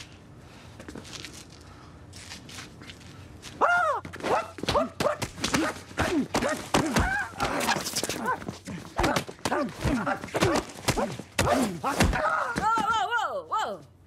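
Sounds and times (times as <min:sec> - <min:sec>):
slaps and thuds of punches: 0:04.6 - 0:08.4, 0:09.0 - 0:13.0.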